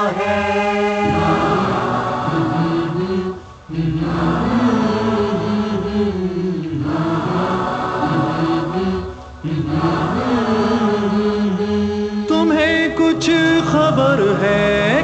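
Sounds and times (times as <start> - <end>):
men chanting in chorus: 0.0 - 15.0.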